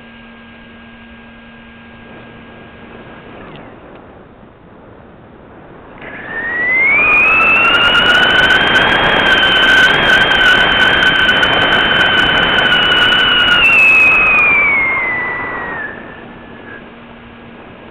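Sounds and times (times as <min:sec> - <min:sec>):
rushing buffeting wind: 0:00.7 - 0:17.9
high air whistle: 0:06.0 - 0:17.1
lower whistle: 0:06.0 - 0:17.4.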